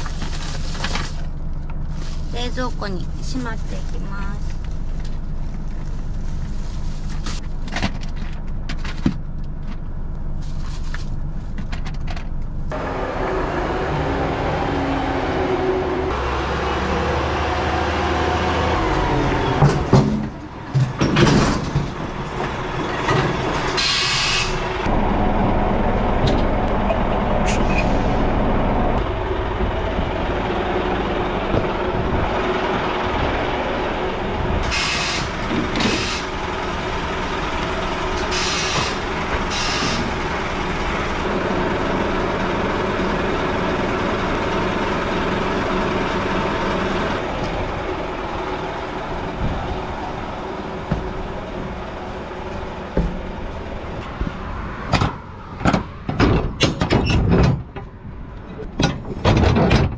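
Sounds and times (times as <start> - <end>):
truck diesel engine running: 0.0 - 59.2
knocks and clatters: 10.8 - 12.6, 19.5 - 23.8, 52.4 - 59.9
air brake hisses: 23.8 - 24.6, 38.3 - 40.1.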